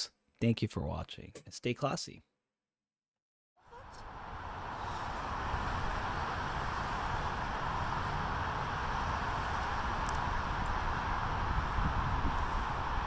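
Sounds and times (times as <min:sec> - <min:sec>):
traffic hum: 0:03.6 - 0:13.0
wind rumbling on microphone: 0:03.7 - 0:13.0.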